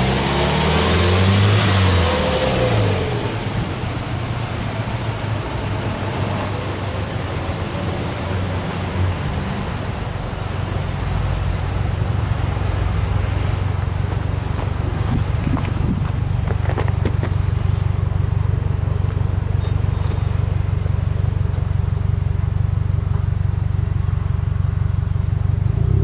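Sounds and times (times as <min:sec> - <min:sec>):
car engine idling: 0:01.8 - 0:26.0.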